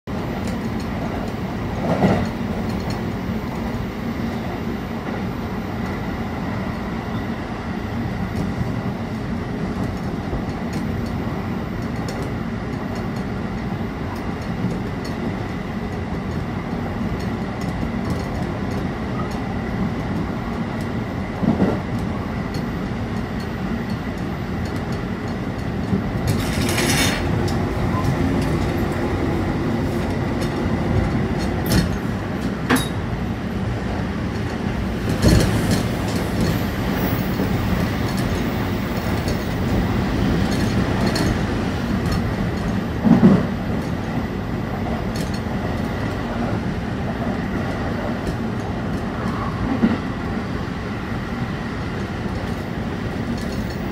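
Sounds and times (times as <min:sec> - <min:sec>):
train wheels rumbling on rail: 0:00.1 - 0:53.9
train knock: 0:26.2 - 0:33.0.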